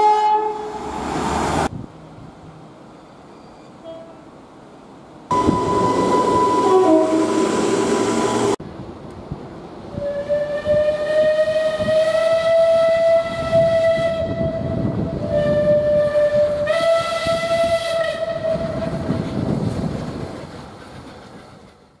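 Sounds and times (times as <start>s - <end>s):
steam locomotive whistle blasts: 0.0s - 0.8s, 5.3s - 8.6s, 9.9s - 19.0s
low rumble of train: 0.0s - 22.0s.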